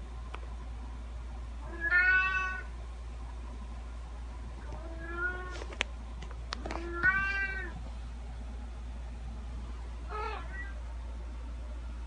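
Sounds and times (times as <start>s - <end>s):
cat meowing: 1.6s - 2.7s, 4.7s - 5.5s, 6.8s - 7.8s, 10.1s - 10.8s.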